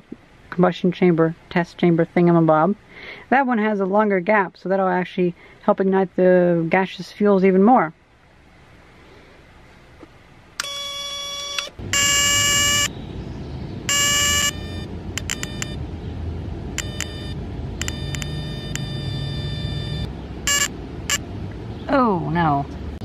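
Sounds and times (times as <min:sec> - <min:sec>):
low steady rumble: 0:11.8 - 0:23.0.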